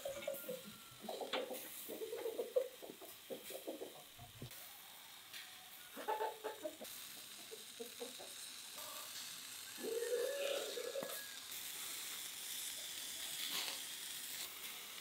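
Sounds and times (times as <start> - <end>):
hens clucking: 0.0 - 4.5, 6.0 - 8.5, 9.8 - 11.2
meat crackling on a grill: 0.0 - 15.0.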